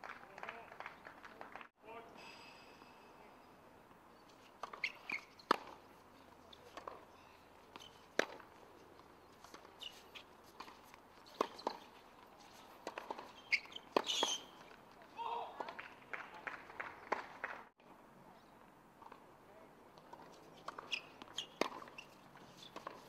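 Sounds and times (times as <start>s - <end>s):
tennis ball bouncing: 4.4s - 5.9s, 6.6s - 14.8s, 20.0s - 23.0s.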